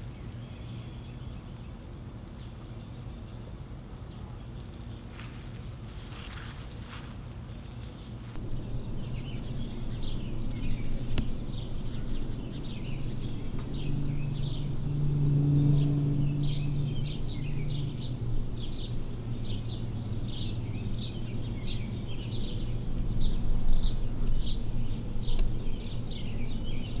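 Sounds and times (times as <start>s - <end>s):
birds chirping: 7.6s - 27.0s
low hum: 8.3s - 27.0s.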